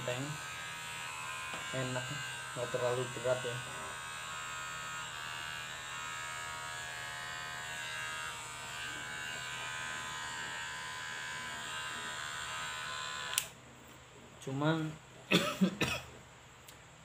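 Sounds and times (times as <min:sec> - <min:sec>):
electric hair clipper buzzing: 0:00.0 - 0:13.6.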